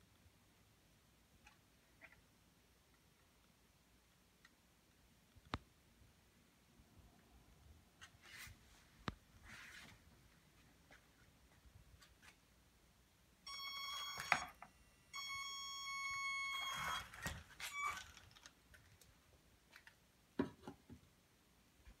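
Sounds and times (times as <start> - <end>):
steady electronic beeps: 13.5 - 17.1.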